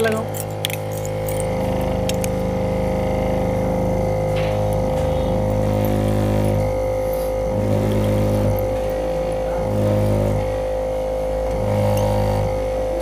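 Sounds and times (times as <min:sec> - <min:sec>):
vacuum pump droning hum: 0:00.0 - 0:13.0.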